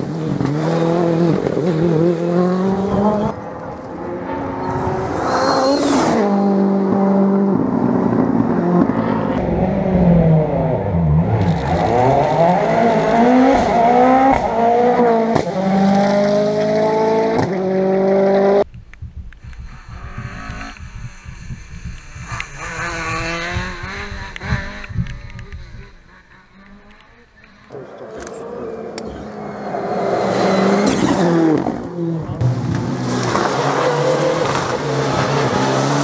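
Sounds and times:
rally car engines revving: 0.0 - 18.6, 19.7 - 36.0
distant rally car revving: 0.0 - 18.7, 19.6 - 36.0.

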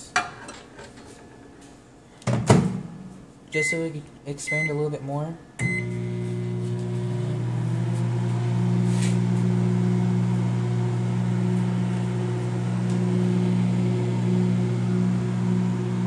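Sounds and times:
microwave oven humming: 5.6 - 16.0.

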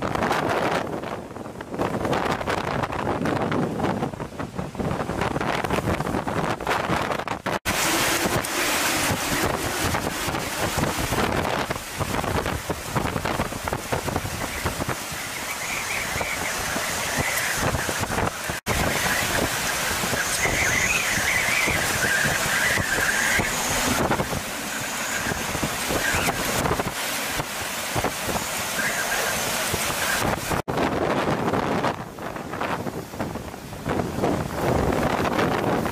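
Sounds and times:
driving rain: 0.0 - 35.9
strong wind gusting: 0.0 - 35.9
wavering high whistle: 15.2 - 26.6, 28.7 - 30.2.

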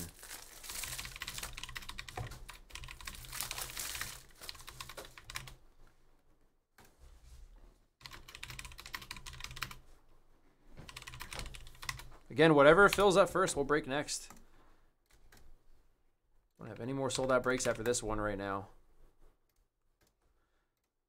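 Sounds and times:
typing on computer keyboard: 0.8 - 5.6, 8.0 - 9.8, 10.9 - 12.1.

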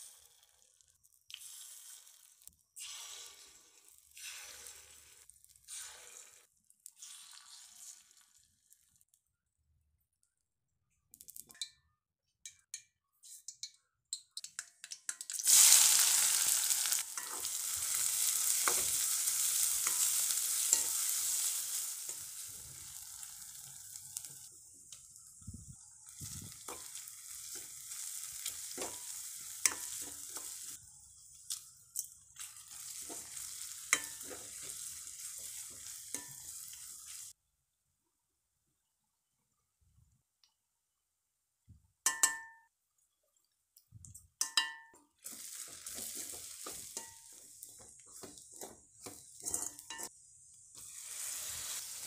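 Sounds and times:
onions sizzling in hot fat: 0.0 - 9.0, 15.3 - 37.4, 45.2 - 52.0
spatula tapping metal pan: 29.6 - 30.5, 42.1 - 42.7, 44.4 - 50.1
spatula scraping pan: 32.5 - 37.3, 45.2 - 50.1.

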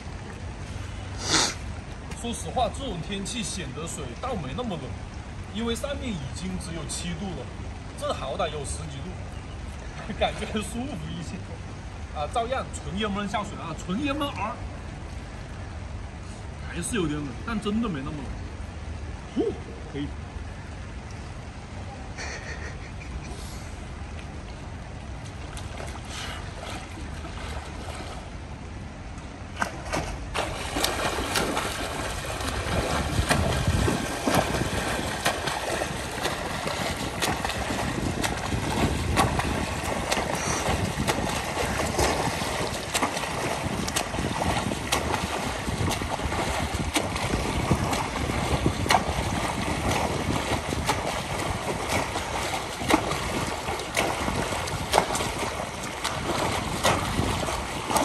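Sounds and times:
light rain and wind hiss: 0.0 - 58.0
arms slapping water: 24.2 - 58.0
swimmer splashing in pool: 29.5 - 58.0.

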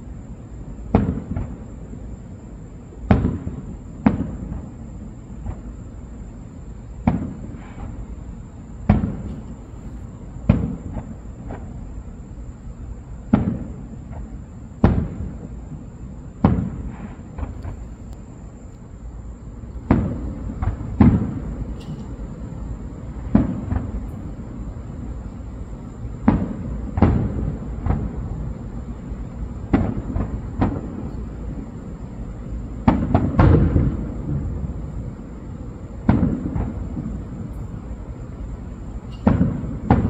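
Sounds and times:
firework shells exploding: 0.9 - 1.8, 3.0 - 5.8, 7.0 - 8.1, 8.8 - 11.8, 13.2 - 15.6, 16.4 - 18.8, 19.8 - 22.4, 23.1 - 24.4, 25.7 - 31.9, 32.5 - 35.0, 35.9 - 38.0, 38.7 - 40.0.

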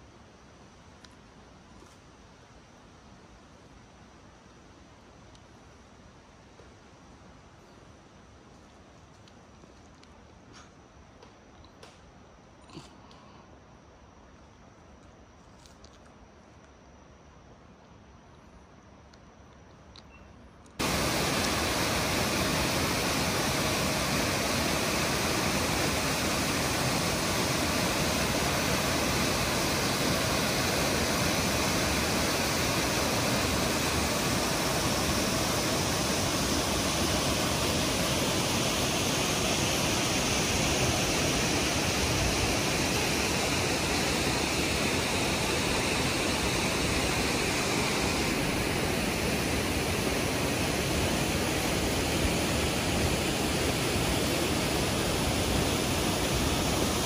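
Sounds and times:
stream water rushing: 20.8 - 57.0.

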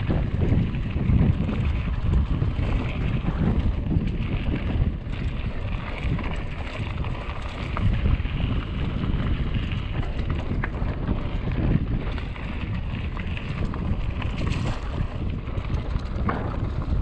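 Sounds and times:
bike clicks and rattles: 0.0 - 17.0
tyres on dirt trail: 0.0 - 17.0
wind buffeting microphone: 0.0 - 17.0.

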